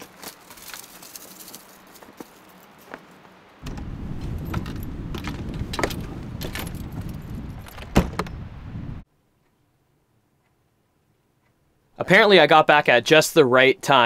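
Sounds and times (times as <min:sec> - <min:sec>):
keys jangling: 0:00.0 - 0:02.6, 0:05.8 - 0:07.8.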